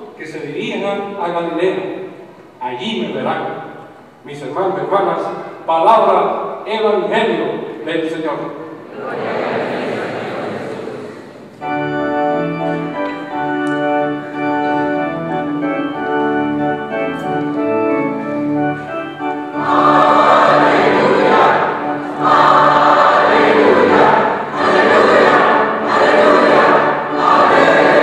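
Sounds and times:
church organ chords: 0.0 - 28.0
choir singing: 8.9 - 11.6, 18.0 - 28.0.

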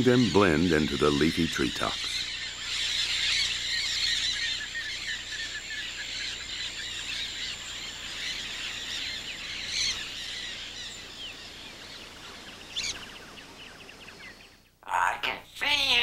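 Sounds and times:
parrots chattering: 0.0 - 11.0, 14.8 - 16.0.

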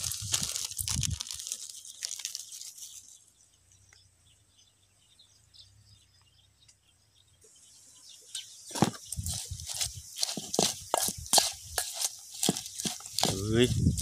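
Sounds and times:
plastic bag crinkling: 0.0 - 3.2
small high chirps: 0.0 - 4.1.

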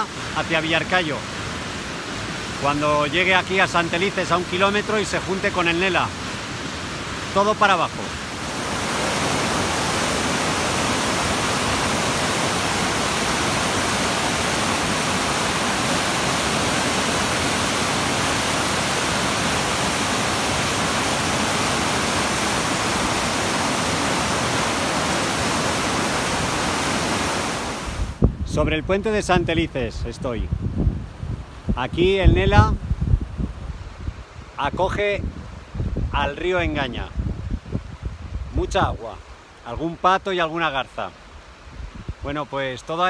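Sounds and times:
river rushing over rapids: 0.0 - 28.3.

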